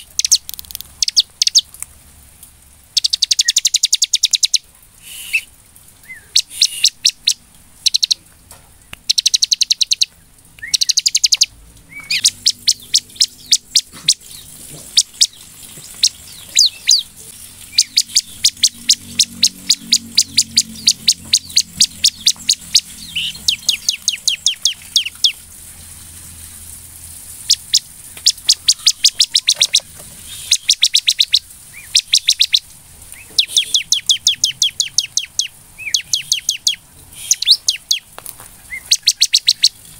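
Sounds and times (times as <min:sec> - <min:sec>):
bird singing rapid high chirps: 0:00.0 - 0:01.7, 0:02.9 - 0:08.2, 0:08.8 - 0:25.5, 0:27.4 - 0:38.1, 0:38.7 - 0:39.9.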